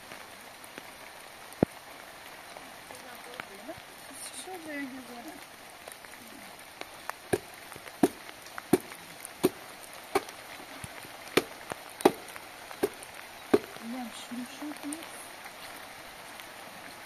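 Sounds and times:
tool chopping wood: 7.3s - 9.6s, 10.2s - 10.4s, 11.4s - 13.8s.

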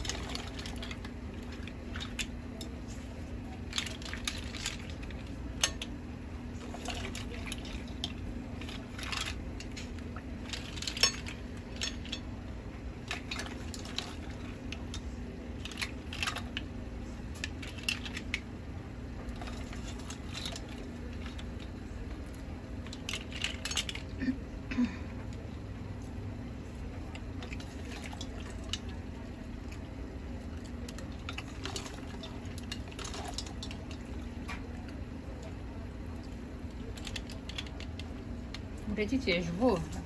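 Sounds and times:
broth sloshing: 0.0s - 24.3s, 25.2s - 40.0s
low steady hum: 0.0s - 40.0s
mussel shells clattering: 6.6s - 12.4s, 13.0s - 16.7s, 19.3s - 24.2s, 30.6s - 35.4s, 36.7s - 38.7s.

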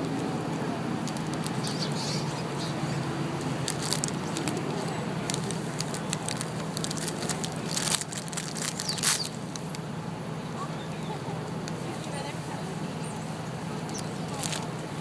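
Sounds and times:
paper bag crinkling: 1.0s - 1.8s, 3.6s - 9.4s, 14.3s - 14.7s.

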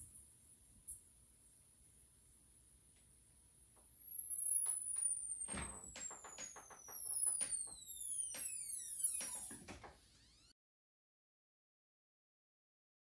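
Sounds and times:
tesla coil high whine: 1.8s - 10.5s
electric discharge snaps and crackles: 3.7s - 9.9s.

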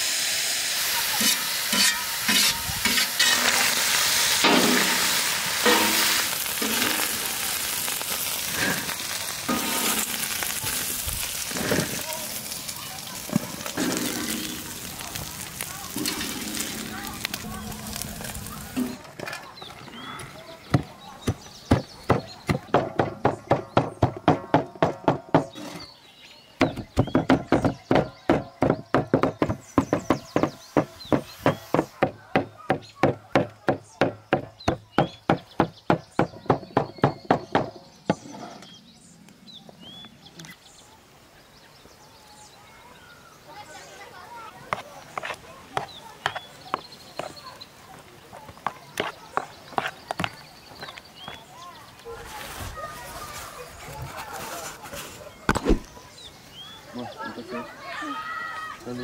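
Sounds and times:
chicken sizzling in oil: 0.0s - 19.0s
metal ladle scraping a pan: 1.1s - 7.2s, 9.4s - 10.8s, 15.9s - 18.0s
cleavers chopping on wooden board: 20.7s - 25.7s, 26.6s - 38.3s.

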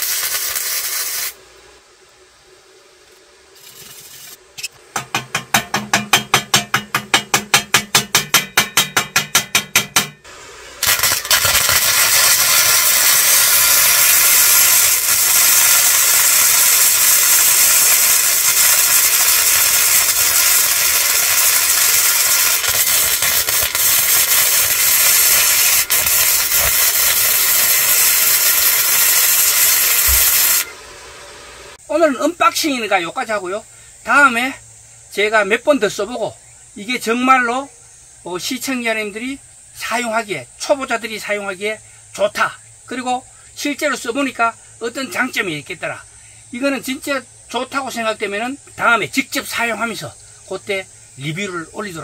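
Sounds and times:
welding arc crackling: 0.0s - 1.4s, 6.0s - 31.8s.

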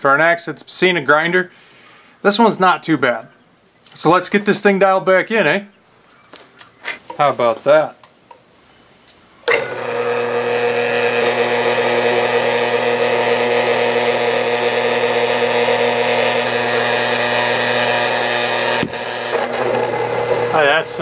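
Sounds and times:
wet grinder motor humming: 9.5s - 21.0s.

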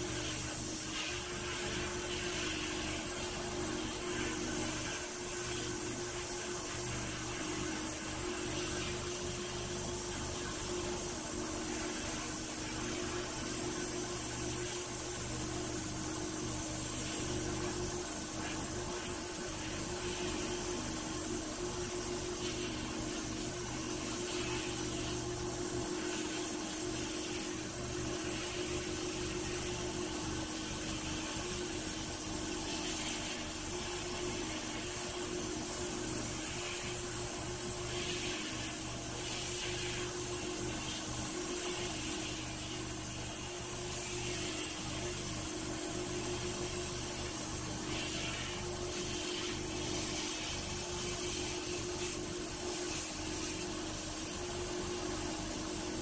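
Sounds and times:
steady machine hum: 0.0s - 56.0s.

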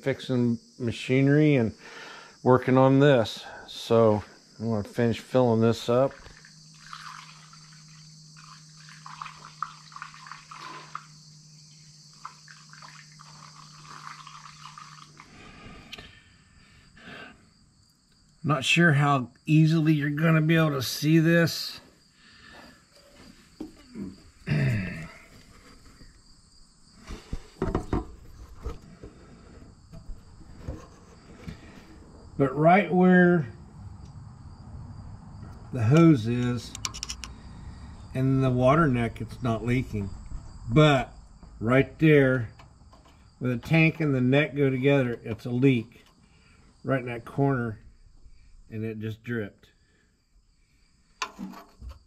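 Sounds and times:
crickets chirping: 0.0s - 52.0s
liquid gurgling through funnel: 6.1s - 11.1s, 12.2s - 15.4s
knocks and rustles: 27.0s - 32.3s, 51.2s - 52.0s.

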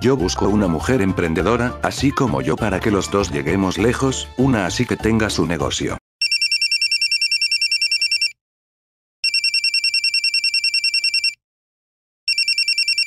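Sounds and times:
telephone bell ringing: 6.2s - 8.4s, 9.2s - 11.4s, 12.3s - 13.0s.

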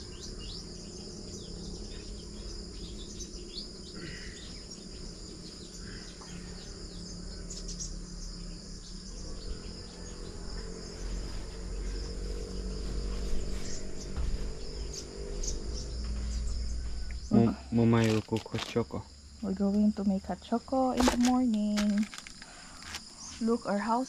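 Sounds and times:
bird chirps: 0.0s - 17.6s
insects chirring: 0.0s - 24.0s.

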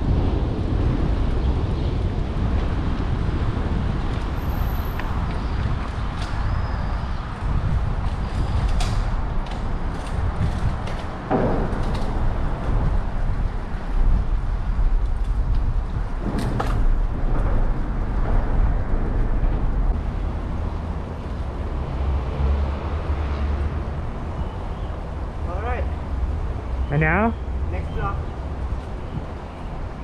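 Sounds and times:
wind and road rumble: 0.0s - 30.0s.

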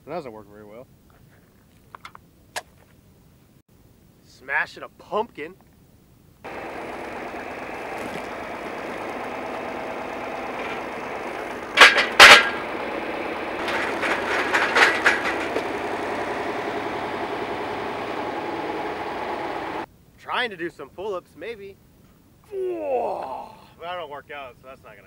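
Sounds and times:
tractor engine running: 6.5s - 19.9s
light knocks and clatter: 10.2s - 16.8s.

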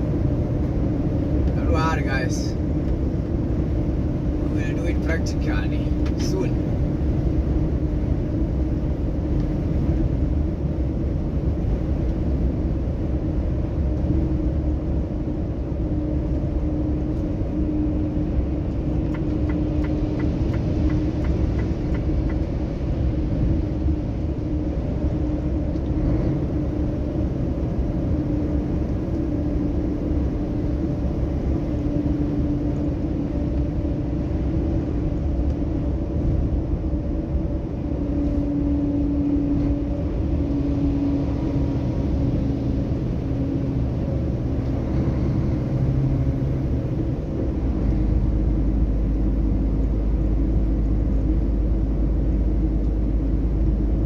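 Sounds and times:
constant hum: 0.0s - 54.0s
truck engine and road drone: 0.0s - 54.0s.

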